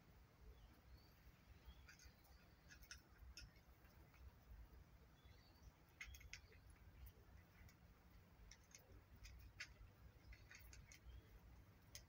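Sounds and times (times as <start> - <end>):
cat chewing dry kibble: 1.9 - 4.6, 5.8 - 12.0.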